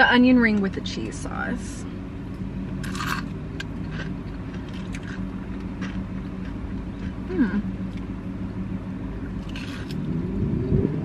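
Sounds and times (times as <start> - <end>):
low vehicle hum: 0.0 - 11.0
chewing and soft crunching: 2.8 - 8.6
person humming: 7.3 - 7.7.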